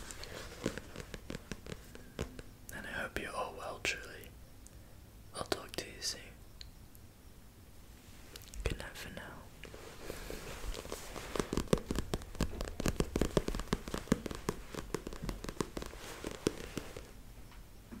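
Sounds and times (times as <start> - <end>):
microphone handling crackling: 0.0 - 2.5, 9.6 - 17.2.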